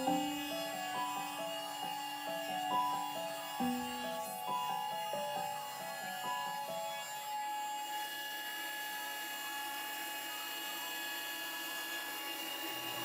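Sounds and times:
bit cutting wood hiss: 0.0 - 8.2
router spindle whine: 0.0 - 13.0.

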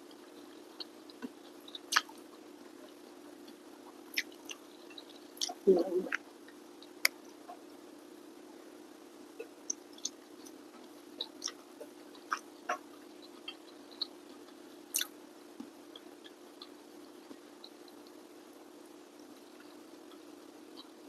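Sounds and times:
steady low hum: 0.0 - 21.0
person chewing with mouth clicks: 0.8 - 2.2, 3.4 - 5.7, 11.2 - 15.1.

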